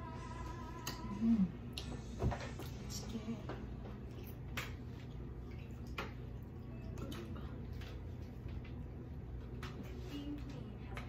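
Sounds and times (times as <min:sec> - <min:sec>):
low steady hum: 0:00.0 - 0:11.0
wet chewing and squishing: 0:03.8 - 0:08.8.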